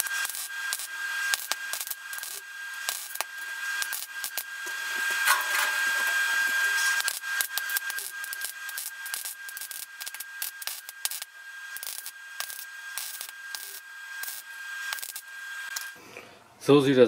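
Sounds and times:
welding arc crackling: 0:00.0 - 0:16.0
steady high tone: 0:04.6 - 0:07.1.

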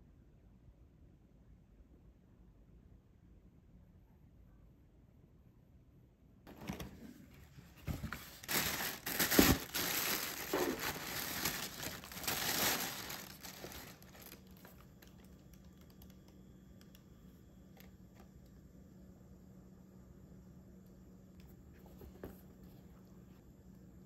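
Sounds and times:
tissue paper crinkling: 0:07.6 - 0:15.2.

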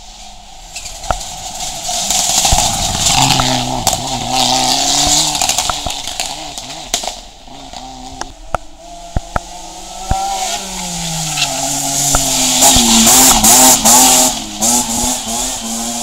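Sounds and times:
sharp exhaust cracks: 0:00.7 - 0:09.5
rally car engine revving: 0:00.8 - 0:16.0.

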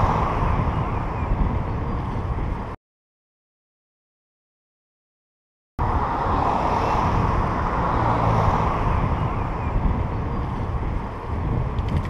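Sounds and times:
wind and road noise: 0:00.0 - 0:02.8, 0:05.8 - 0:12.0.

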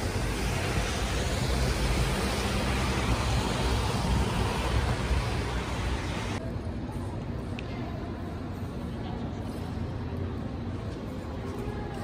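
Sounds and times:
rain hissing: 0:00.0 - 0:06.4
traffic rumble on wet streets: 0:00.0 - 0:06.4.

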